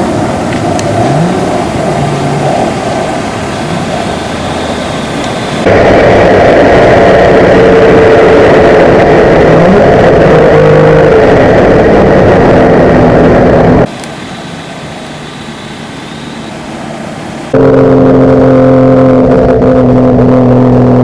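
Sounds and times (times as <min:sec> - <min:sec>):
wind noise: 0:00.0 - 0:14.0
distant car running: 0:00.0 - 0:21.0
race car engine running hard: 0:00.0 - 0:21.0.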